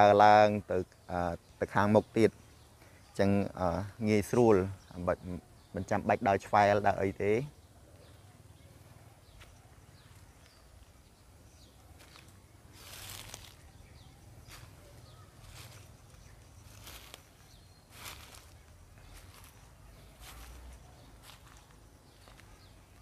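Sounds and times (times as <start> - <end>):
footsteps on dry leaves: 11.9 - 23.0.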